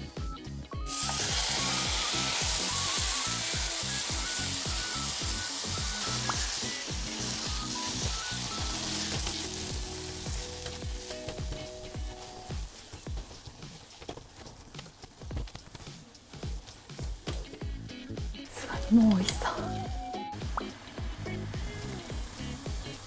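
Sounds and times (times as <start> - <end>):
vegetables sizzling in a pot: 0.8 - 13.5, 18.6 - 23.0.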